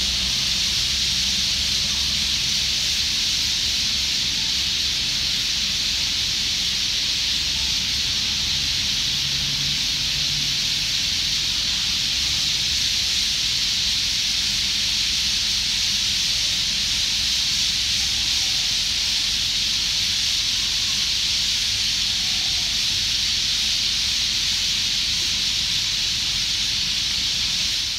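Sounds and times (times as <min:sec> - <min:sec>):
flock of birds chattering: 0:15.9 - 0:27.9.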